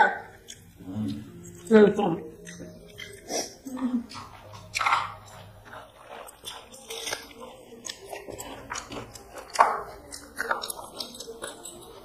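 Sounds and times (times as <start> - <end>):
chewing and mouth smacks: 2.4 - 12.0.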